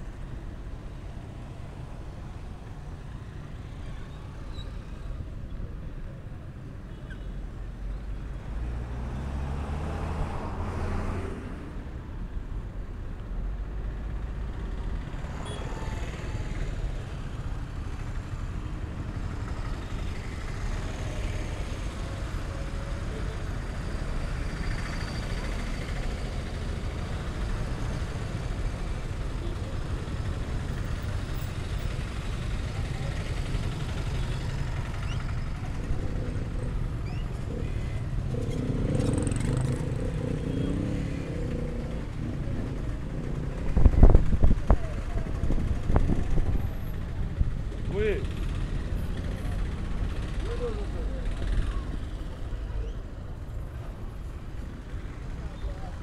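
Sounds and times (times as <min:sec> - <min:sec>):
steady traffic rumble: 0:00.0 - 0:56.0
vehicles passing: 0:00.0 - 0:56.0
engine passing close: 0:32.7 - 0:52.5.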